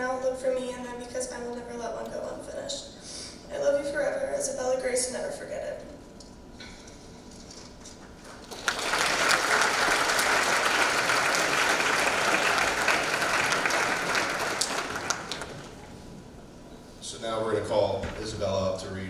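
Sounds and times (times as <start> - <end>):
audience applauding: 8.2 - 16.0.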